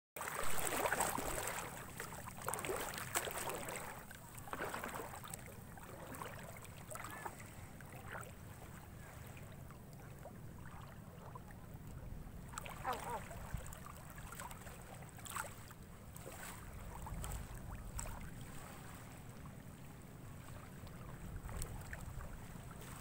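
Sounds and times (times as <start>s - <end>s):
water splashing against rocks: 0.2s - 7.5s
wind rumble on microphone: 16.0s - 23.0s.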